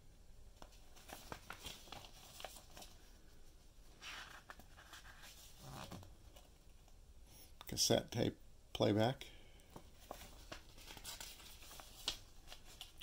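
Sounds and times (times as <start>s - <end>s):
page turning rustle: 0.6s - 3.1s, 4.0s - 6.5s, 9.8s - 13.0s
paper pages flicking: 10.2s - 13.0s.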